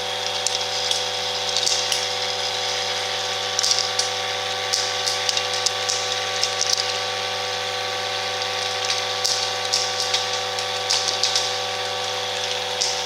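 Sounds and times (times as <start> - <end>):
vibratory feeder humming: 0.0 - 13.0
plastic caps rattling: 3.5 - 7.1, 8.4 - 13.0.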